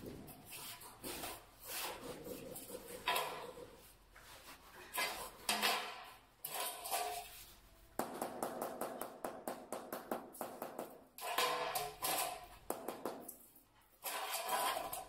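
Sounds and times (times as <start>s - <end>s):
straightedge scraping on tile: 0.4s - 7.7s, 11.2s - 12.6s, 13.9s - 15.0s
rubber mallet knocking on tile: 8.0s - 11.8s, 12.6s - 13.3s.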